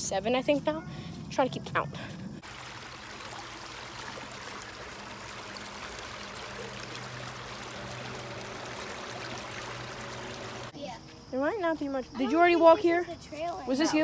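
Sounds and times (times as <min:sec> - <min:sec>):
stream water flowing: 0:02.4 - 0:10.8.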